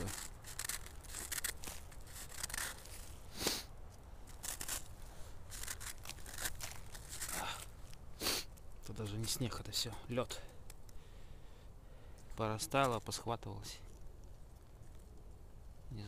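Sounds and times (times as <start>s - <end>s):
hand crunching icy snow: 0.0s - 9.8s.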